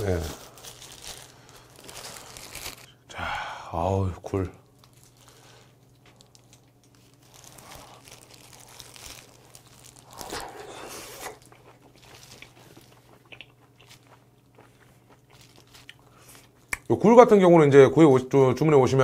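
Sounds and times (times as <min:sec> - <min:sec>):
person chewing oysters: 0:04.7 - 0:16.9.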